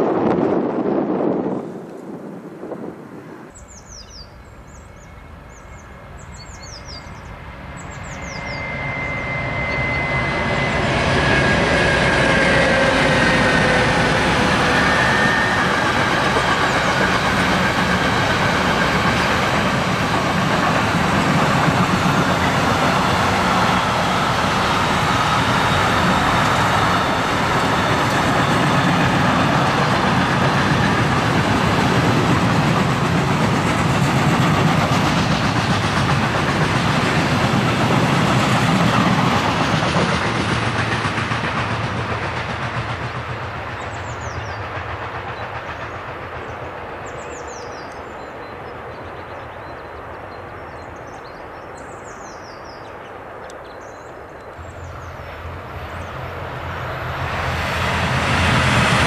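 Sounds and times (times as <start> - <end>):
locomotive whine: 0.0 - 42.3
freight train rumbling past: 0.0 - 59.0
birds chirping: 3.5 - 10.5, 43.8 - 57.0.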